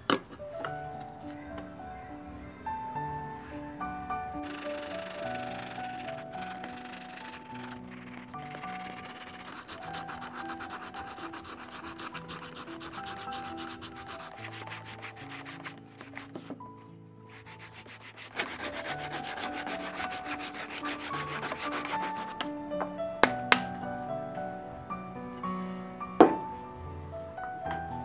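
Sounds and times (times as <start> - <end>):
soft background music: 0.0 - 28.0
sandpaper rasping on coconut husk: 4.4 - 16.5, 17.3 - 22.4.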